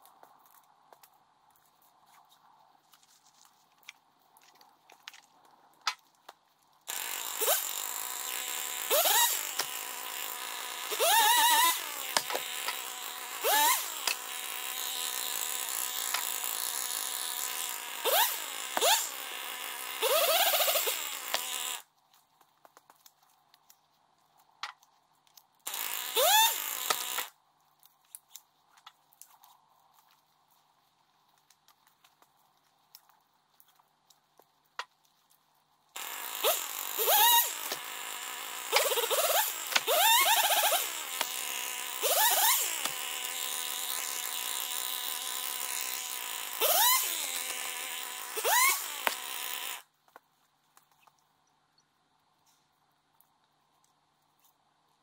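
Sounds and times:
chainsaw engine revving: 6.9 - 21.8, 25.6 - 27.3, 36.0 - 49.9.

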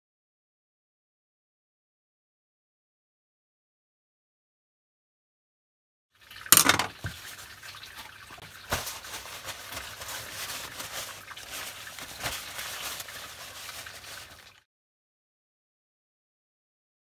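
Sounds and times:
paper towel crumpling: 8.4 - 14.6.

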